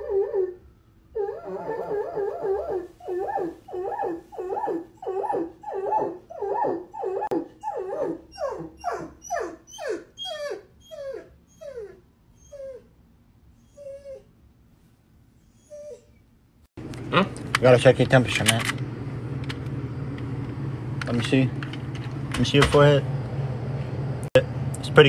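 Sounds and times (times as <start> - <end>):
dog howling: 0.0 - 12.9, 15.5 - 16.2
dog whimpering: 0.0 - 12.9, 13.6 - 14.3, 15.4 - 16.2.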